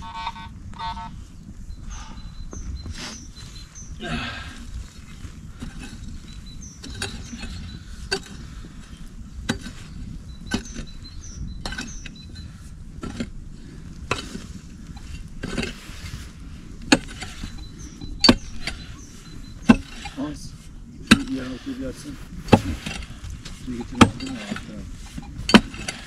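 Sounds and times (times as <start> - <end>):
soil scraping: 2.8 - 26.0
digging tool striking earth: 5.6 - 8.6, 9.4 - 12.4, 13.0 - 13.4, 14.0 - 16.1, 16.8 - 19.0, 19.6 - 20.4, 21.0 - 26.0.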